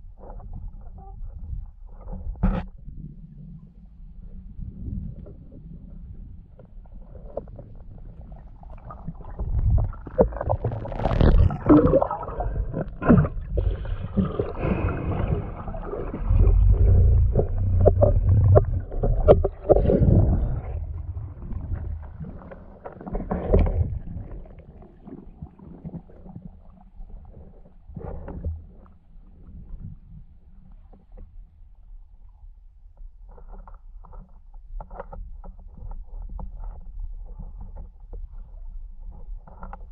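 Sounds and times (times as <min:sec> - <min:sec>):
underwater rushing and gurgling: 0:00.0 - 0:30.4
knocks underwater: 0:02.0 - 0:03.0, 0:08.8 - 0:26.3.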